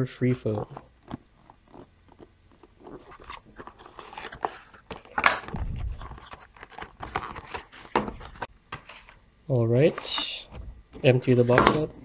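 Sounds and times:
cardboard packaging rustling: 0.5 - 9.2.

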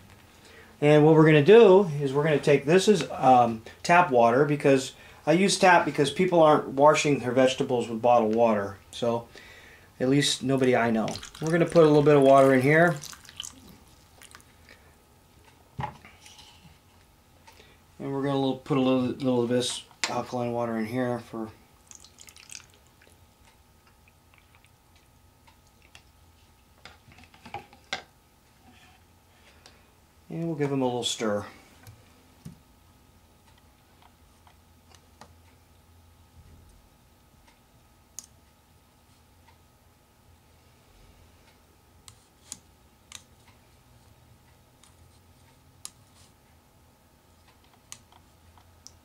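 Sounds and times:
faint steady hum: 0.0 - 49.0.

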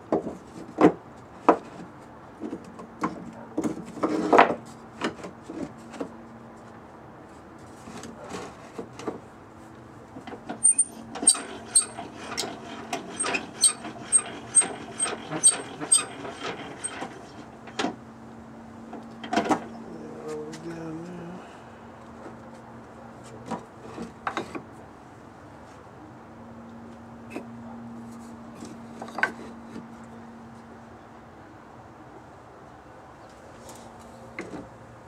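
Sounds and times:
metal filter knocking and scraping: 10.5 - 18.0
short squeaky ticks: 10.6 - 12.0.

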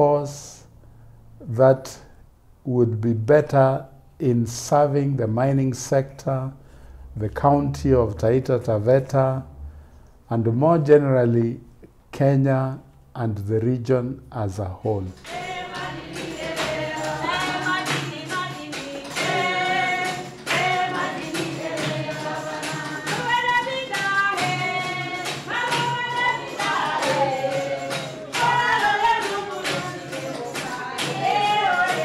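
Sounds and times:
voices singing: 14.8 - 32.0
percussion beat: 15.0 - 32.0.

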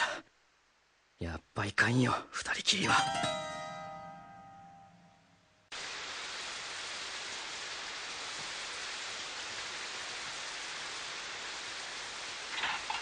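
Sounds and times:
hiss of falling water: 5.7 - 13.0.

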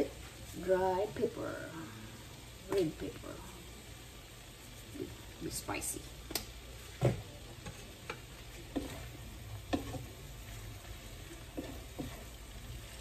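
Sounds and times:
food sizzling in frying pan: 0.0 - 13.0
spatula scraping frying pan: 7.6 - 13.0.

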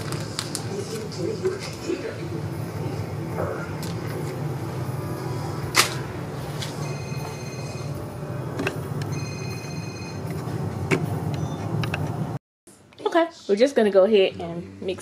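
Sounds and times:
electronic ringing tone: 6.8 - 10.5.

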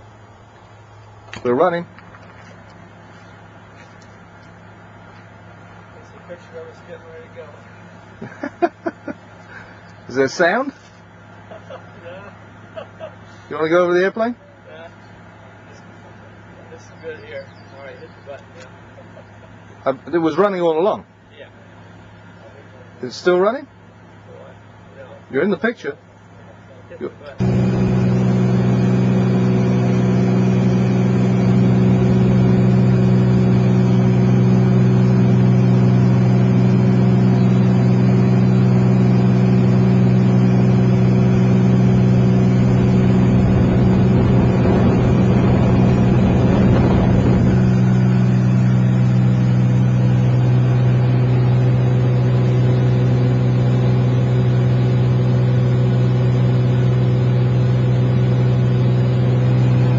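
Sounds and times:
engine droning: 0.0 - 59.9
rushing noise: 42.5 - 48.5.

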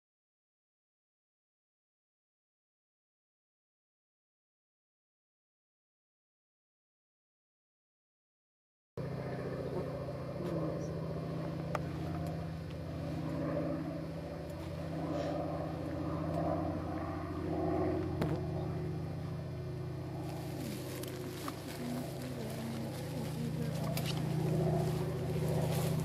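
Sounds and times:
low engine drone: 9.0 - 26.0.

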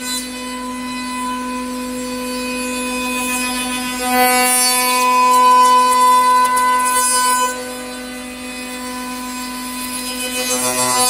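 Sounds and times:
router spindle whining: 0.0 - 11.0.

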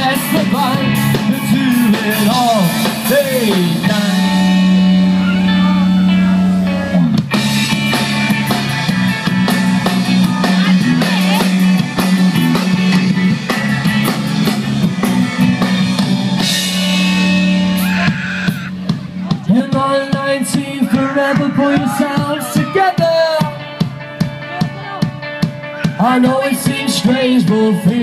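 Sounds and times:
bass guitar: 0.0 - 28.0
drum kit steady beat: 0.0 - 28.0
electric guitars: 0.0 - 28.0
live rock band playing: 0.0 - 28.0.

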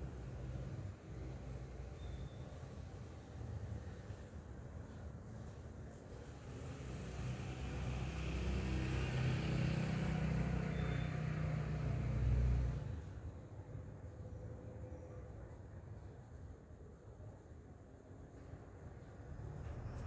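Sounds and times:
vehicle driving past: 6.4 - 13.2, 19.3 - 20.0.

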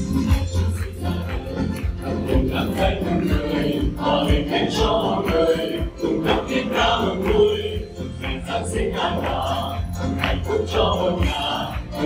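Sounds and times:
group singing a christmas song: 0.0 - 12.0.

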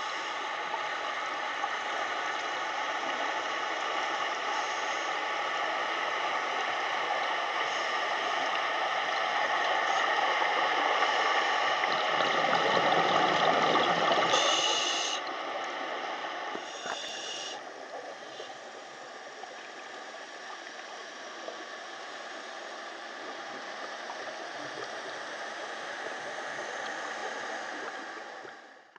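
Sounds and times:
water gurgling underwater: 11.8 - 14.6
steady hiss: 13.1 - 28.9.

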